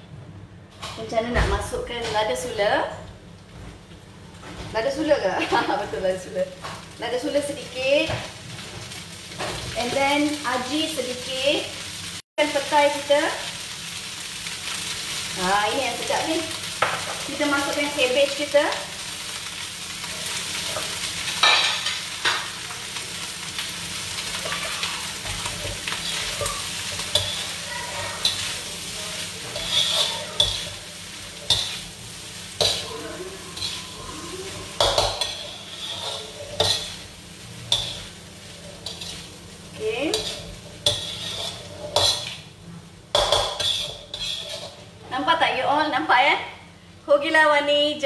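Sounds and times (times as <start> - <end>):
fried rice sizzling in a wok: 2.4 - 47.2
metal spatula scraping and clanking: 20.1 - 22.8, 24.2 - 42.5, 43.1 - 44.9.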